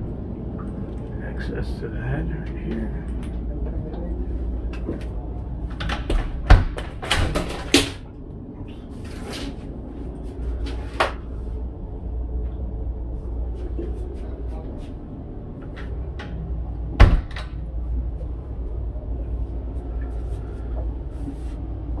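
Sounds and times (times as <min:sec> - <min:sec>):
low steady hum: 0:00.0 - 0:22.0
door clicks and knocks: 0:05.8 - 0:08.0, 0:17.0 - 0:17.6.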